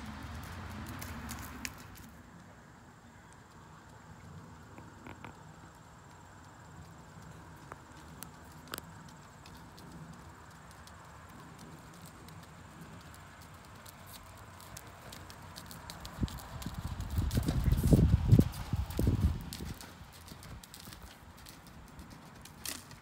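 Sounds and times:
horse hoofbeats on sand: 0:06.7 - 0:23.0.

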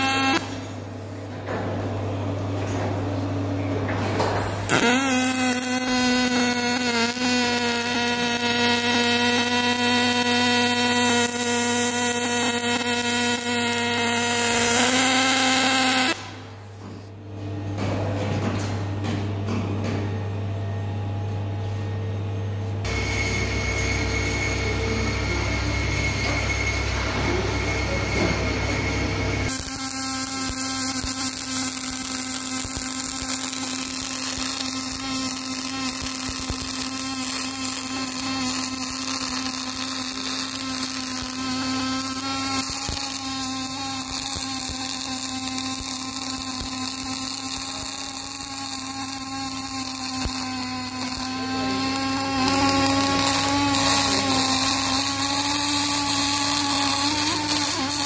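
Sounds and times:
welding arc crackling hiss: 0:00.0 - 0:00.8, 0:04.6 - 0:16.5, 0:29.5 - 0:58.0.

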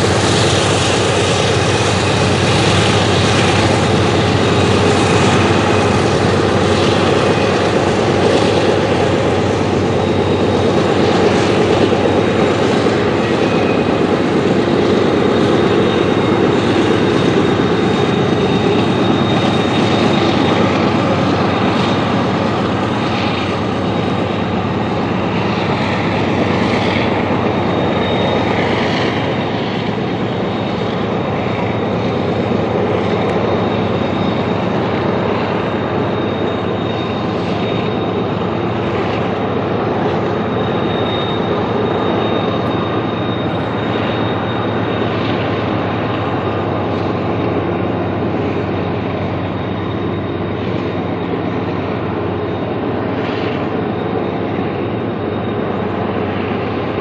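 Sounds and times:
diesel locomotives passing: 0:00.0 - 0:57.0
freight train rumbling on rails: 0:00.0 - 0:57.0
wheel flange squeal: 0:00.0 - 0:57.0.

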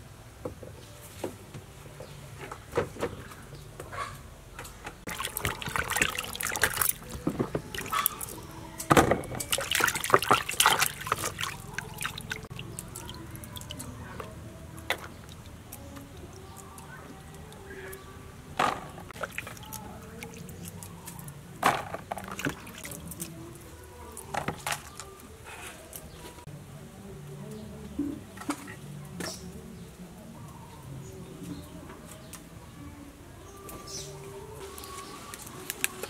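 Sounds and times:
sharp splash: 0:05.1 - 0:08.4, 0:09.4 - 0:13.7
hands splashing in water: 0:05.1 - 0:08.5, 0:09.4 - 0:13.9, 0:19.2 - 0:21.2
water dripping: 0:05.1 - 0:08.6, 0:09.4 - 0:18.0, 0:19.1 - 0:21.4.

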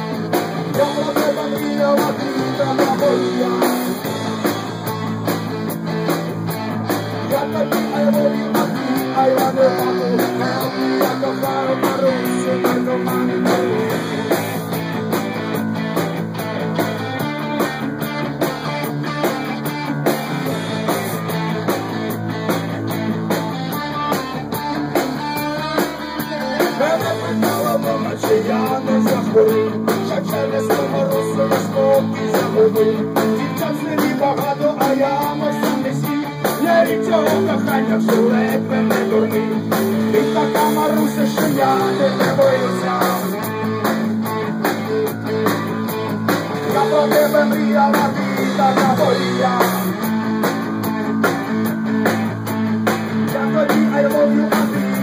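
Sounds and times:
rock band playing live: 0:00.0 - 0:55.0
wavering melodic guitar line: 0:00.0 - 0:55.0.

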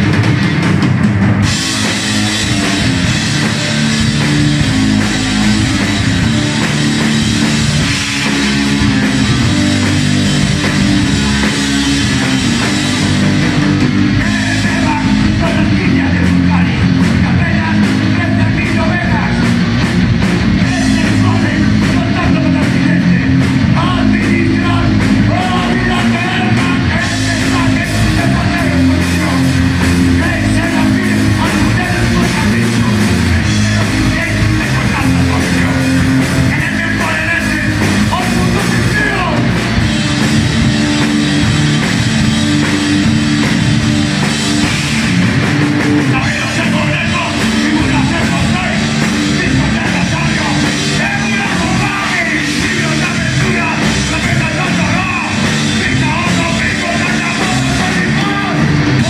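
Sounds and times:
live rock band playing: 0:00.0 - 0:59.0
person singing: 0:20.6 - 0:39.7, 0:46.0 - 0:59.0.

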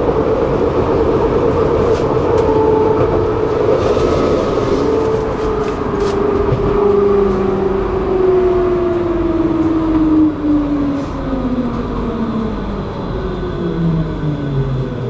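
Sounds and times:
tram motors whining: 0:00.0 - 0:15.0.

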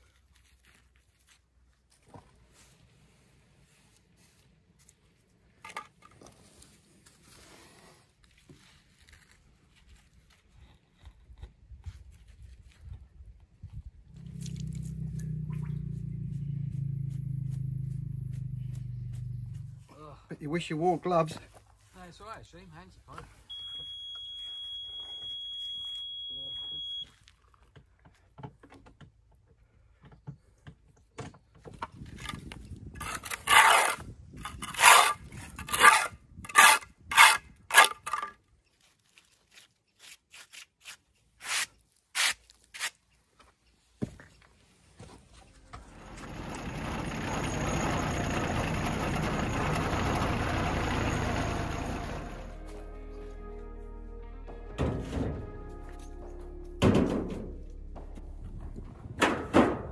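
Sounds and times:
hand tool scraping stone: 0:32.2 - 0:38.3, 0:39.6 - 0:43.0
compact tractor running: 0:45.6 - 0:52.7.

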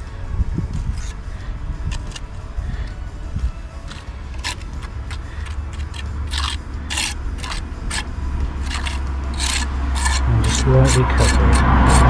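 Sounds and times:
low rumble: 0:00.0 - 0:12.0
trowel scraping mortar: 0:01.9 - 0:02.4, 0:03.8 - 0:12.0.

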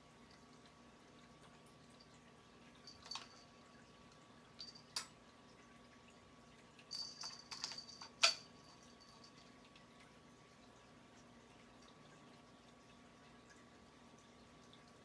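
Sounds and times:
beaded ornament jingling and clicking: 0:06.9 - 0:09.4.

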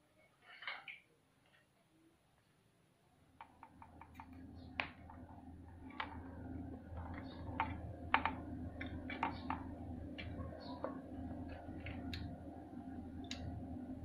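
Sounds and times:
steady low hum: 0:03.1 - 0:14.0.

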